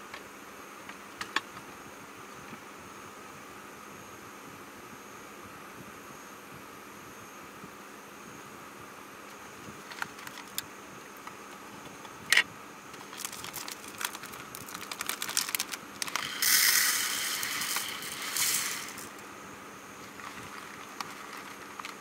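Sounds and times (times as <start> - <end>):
plastic pouch crinkling: 13.0 - 19.2, 20.0 - 22.0
rice pouring into plastic bowl: 13.0 - 19.2, 20.0 - 22.0.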